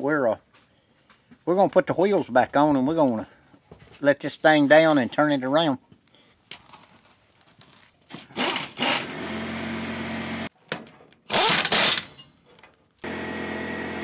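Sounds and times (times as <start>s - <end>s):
air impact wrench bursts: 8.3s - 10.5s, 11.3s - 12.2s.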